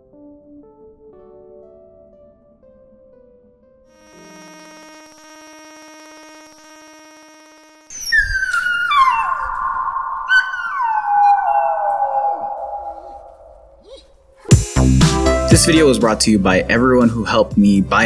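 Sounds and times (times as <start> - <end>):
dog howling: 7.9 - 14.6.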